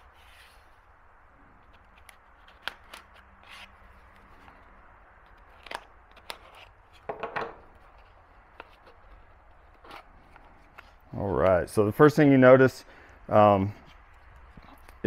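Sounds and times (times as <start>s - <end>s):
knife cutting cardboard tape: 1.6s - 4.6s, 5.2s - 7.1s
knife knocking on wooden bench: 7.1s - 7.6s.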